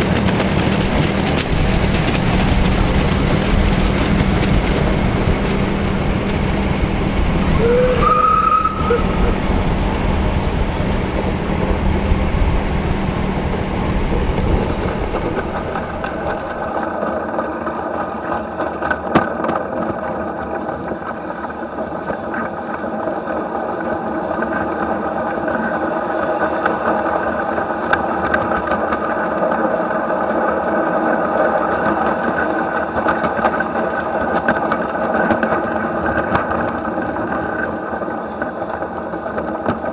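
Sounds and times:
steam locomotive running gear: 0.0 - 39.9
wheels rumbling on rail: 0.0 - 39.9.

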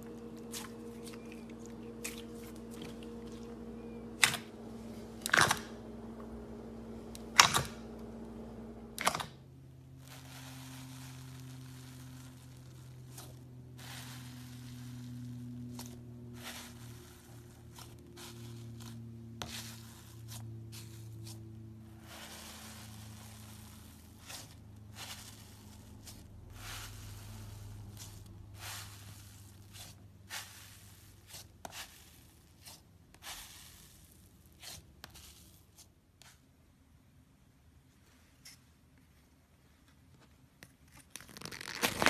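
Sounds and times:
slime squishing: 0.0 - 4.6, 10.0 - 36.4, 41.0 - 42.0
slime crackling and popping: 41.0 - 42.0.

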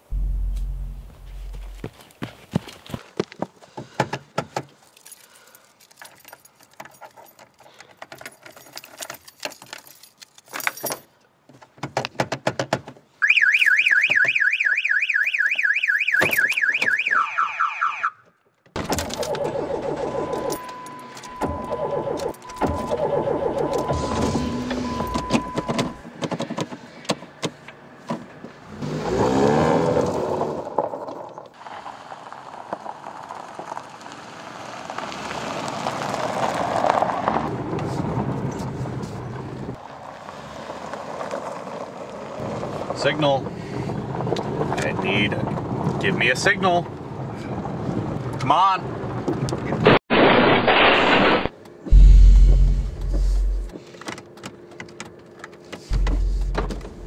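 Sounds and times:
steady noisy rumble: 0.0 - 1.9, 51.9 - 53.7, 55.9 - 57.0
electronic alarm warbling: 19.2 - 25.8.

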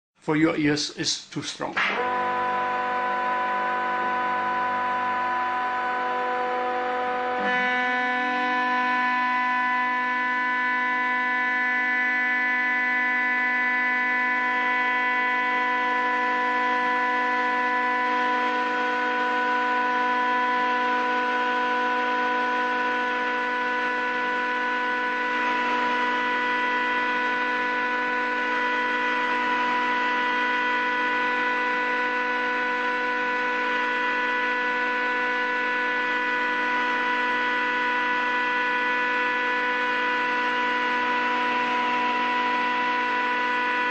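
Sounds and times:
cutting mill humming: 1.7 - 43.9.

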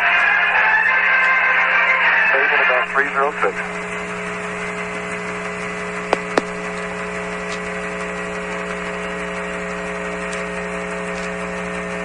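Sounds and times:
radio channel hiss and hum: 2.3 - 12.0
sharp radio clicks: 6.0 - 7.7.

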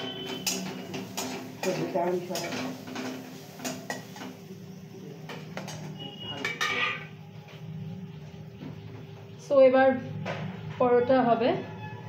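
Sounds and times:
kitchen utensils knocking and clinking: 0.0 - 4.4, 5.3 - 7.1.

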